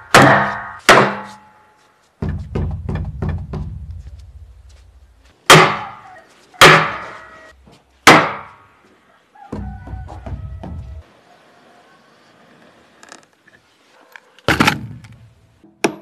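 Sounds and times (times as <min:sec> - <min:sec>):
hammer striking wooden wedges: 0:00.0 - 0:01.6, 0:02.2 - 0:04.0, 0:05.5 - 0:07.3, 0:08.0 - 0:08.6, 0:09.5 - 0:11.0.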